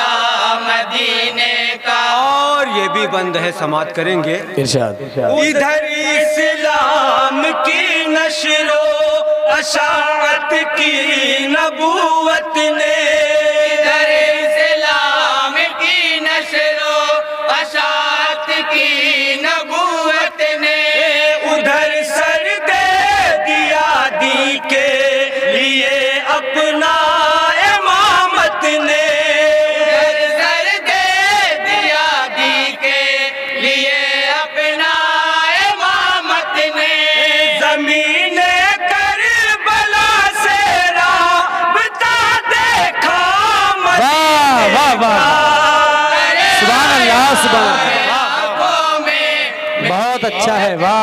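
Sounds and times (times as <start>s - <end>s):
men singing in unison: 0.0s - 3.4s, 5.3s - 51.0s.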